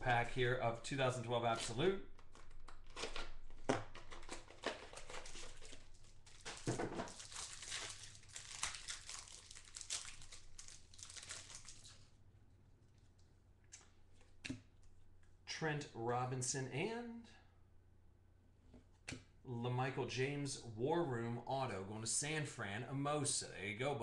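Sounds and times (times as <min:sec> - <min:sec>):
plastic wrapper crinkling: 0:02.1 - 0:12.2.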